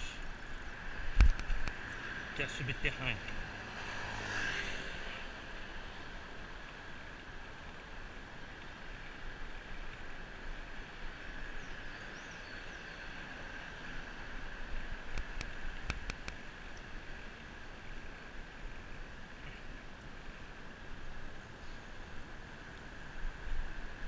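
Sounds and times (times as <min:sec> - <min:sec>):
bicycle tyres on asphalt: 0:00.0 - 0:24.0
wind noise: 0:01.1 - 0:01.8
sharp clicks: 0:15.1 - 0:16.4.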